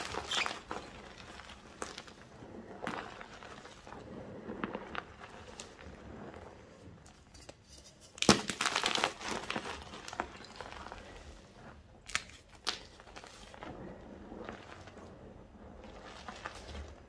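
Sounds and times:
hands squeezing chalk powder: 0.0s - 17.0s
chalk block crushed by hands: 8.1s - 9.3s.

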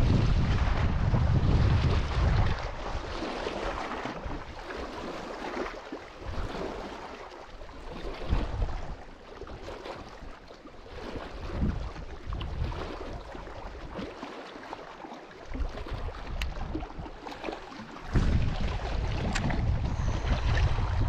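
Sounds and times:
wind buffeting microphone: 0.0s - 5.0s, 7.6s - 10.4s, 11.2s - 14.0s, 15.5s - 21.0s
small waves lapping on rocks: 1.4s - 21.0s.

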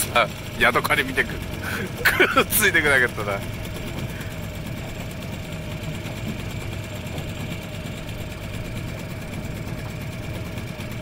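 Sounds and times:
outboard motor running: 0.0s - 11.0s.

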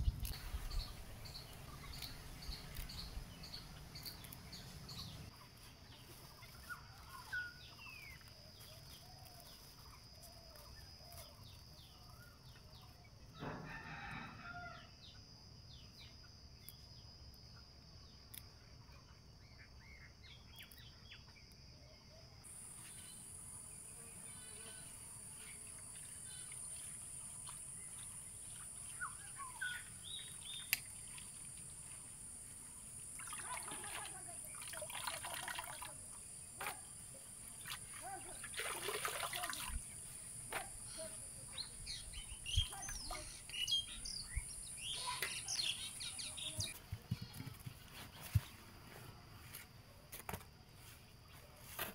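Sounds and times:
small birds chirping: 0.0s - 13.1s, 15.8s - 48.6s
rooster crowing: 13.4s - 14.9s.

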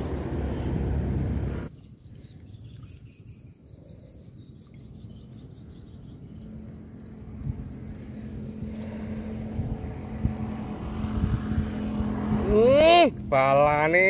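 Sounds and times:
low rumbling noise: 0.0s - 1.7s, 5.7s - 14.0s
insect calls: 0.0s - 12.7s
faint bird chirps: 1.2s - 10.4s.

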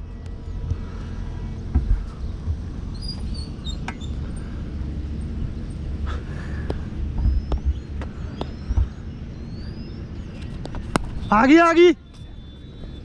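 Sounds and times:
faint bird chirps: 0.0s - 4.6s, 5.6s - 13.0s
wind buffeting microphone: 0.0s - 11.4s
soft thumps: 1.7s - 4.0s, 6.7s - 9.0s.

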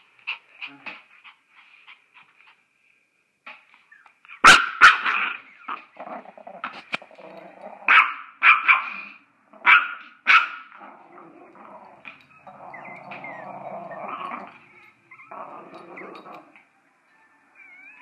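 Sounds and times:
dog barking sharply: 4.4s - 5.2s
dog growling: 6.0s - 7.9s, 10.7s - 16.6s.

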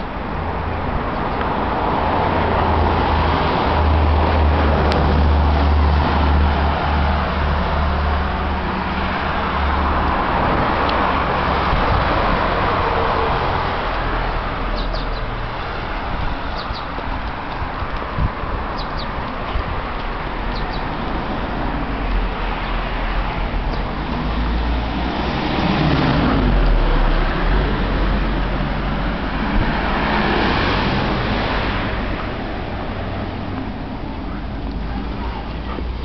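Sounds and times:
cars passing: 0.0s - 36.0s.

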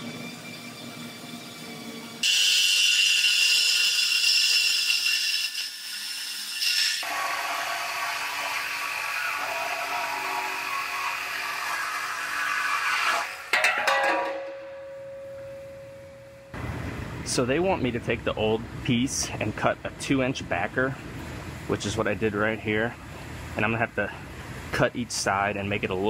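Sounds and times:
reciprocating saw cutting steel: 0.0s - 13.6s.

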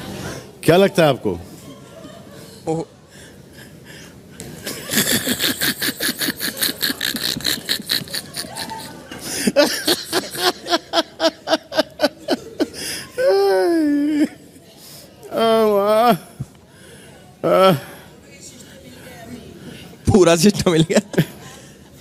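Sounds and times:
men laughing hard: 4.6s - 14.4s.

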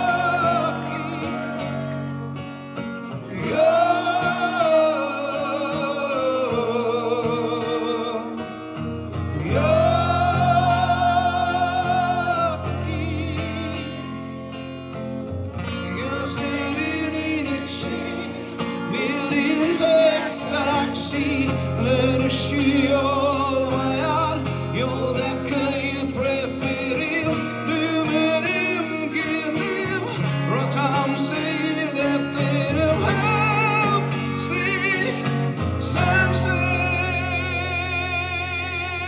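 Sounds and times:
man singing: 0.0s - 2.5s, 3.1s - 14.6s, 15.6s - 39.0s
acoustic guitar playing: 0.0s - 39.0s.

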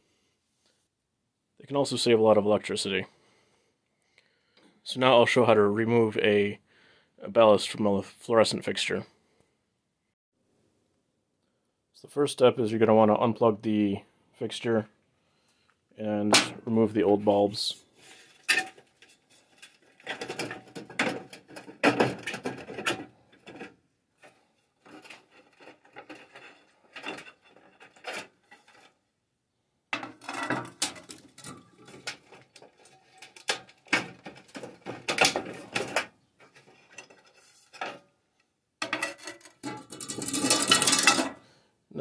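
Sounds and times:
fluorescent tubes clicking and scraping: 18.0s - 29.0s, 30.0s - 38.0s, 38.8s - 41.4s.

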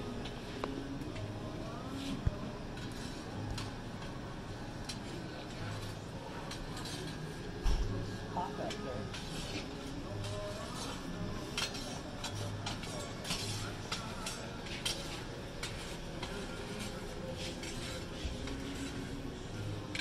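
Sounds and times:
kitchen background hum: 0.0s - 20.0s
kitchen utensils clinking: 8.7s - 18.6s.

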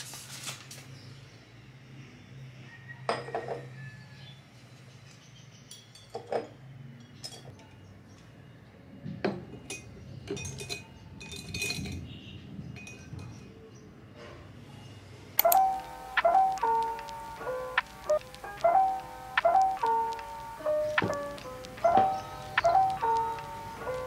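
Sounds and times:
glass clinks and knocks on table: 3.1s - 3.6s
small clicks and taps: 15.4s - 24.0s.

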